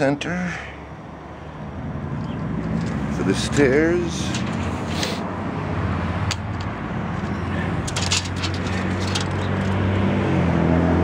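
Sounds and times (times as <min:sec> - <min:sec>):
sharp clicks and rattles: 0:02.2 - 0:03.2, 0:04.2 - 0:04.8, 0:06.2 - 0:09.9.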